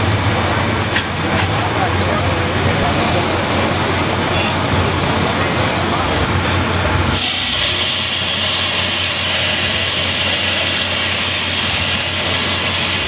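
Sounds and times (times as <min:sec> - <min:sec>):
low engine hum: 0:00.0 - 0:13.0
fire extinguisher hissing: 0:07.1 - 0:13.0.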